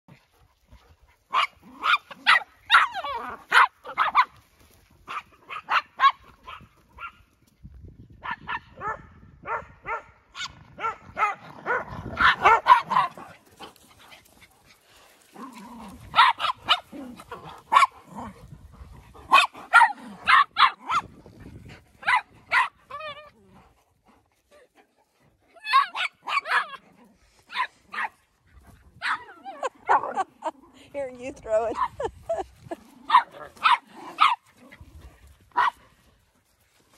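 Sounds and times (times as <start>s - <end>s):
dogs barking: 1.2s - 4.4s, 5.0s - 7.2s, 8.2s - 13.6s, 16.1s - 18.1s, 19.2s - 21.1s, 22.0s - 22.8s, 25.6s - 26.8s, 29.0s - 30.3s, 33.1s - 34.5s, 35.6s - 35.8s.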